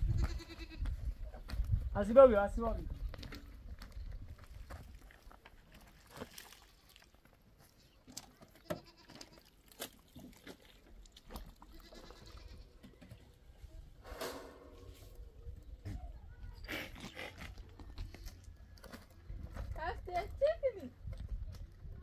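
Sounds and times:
goats bleating: 0:00.2 - 0:00.8, 0:08.5 - 0:09.6, 0:11.6 - 0:12.8.

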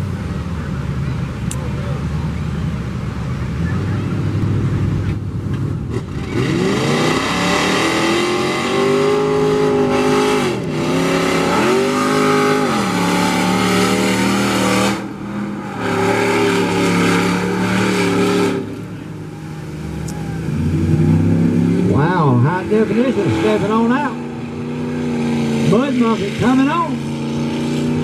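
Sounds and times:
truck engines at full throttle: 0:00.0 - 0:28.0.

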